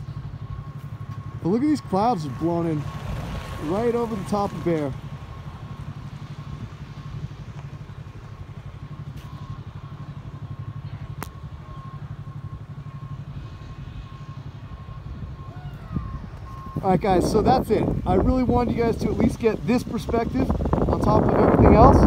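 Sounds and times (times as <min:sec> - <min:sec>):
engine idling: 0:00.0 - 0:22.0.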